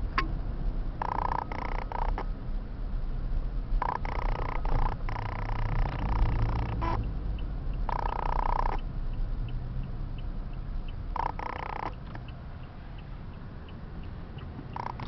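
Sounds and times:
engine and road rumble: 0.0s - 15.0s
light ticking: 3.8s - 15.0s.

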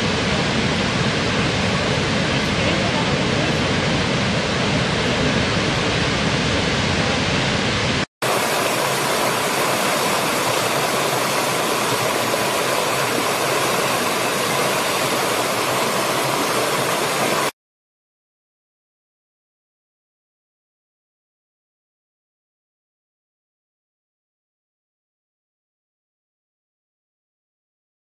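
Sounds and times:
waterfall rushing: 0.0s - 17.6s
stream cascading over rocks: 6.9s - 17.6s.

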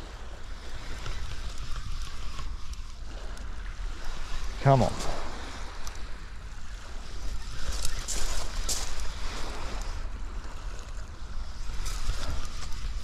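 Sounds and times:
wind on microphone: 0.0s - 13.0s
fishing reel winding: 0.6s - 4.2s.

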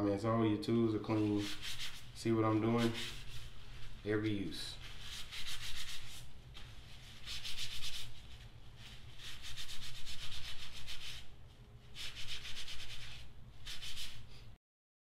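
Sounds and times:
towel rubbing on tool: 1.0s - 11.3s, 11.9s - 14.4s.

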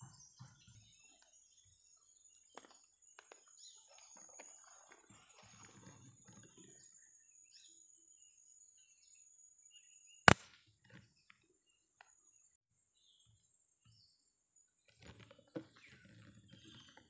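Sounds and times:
air rifle shot: 10.3s - 10.6s.

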